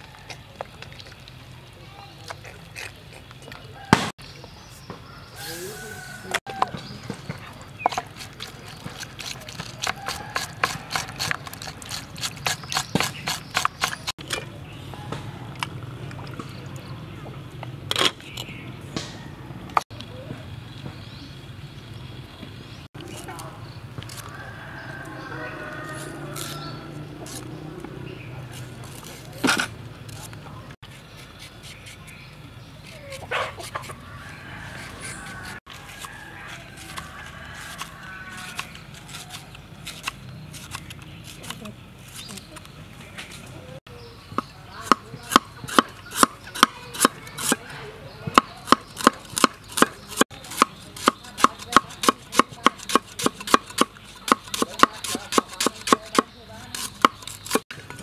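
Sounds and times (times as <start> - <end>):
knife scraping meat: 7.8 - 14.2, 24.1 - 27.6, 28.4 - 42.7, 45.3 - 47.6, 48.7 - 57.7.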